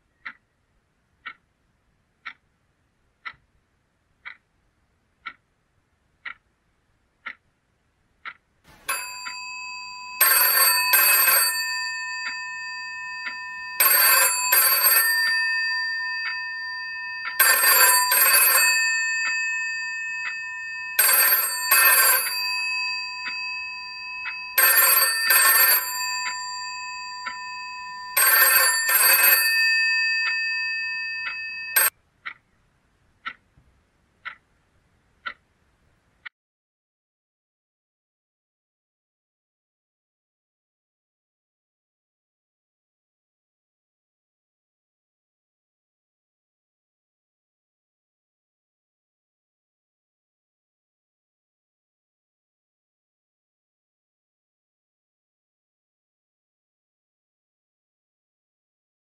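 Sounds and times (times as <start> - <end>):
telephone bell ringing: 8.7 - 31.9.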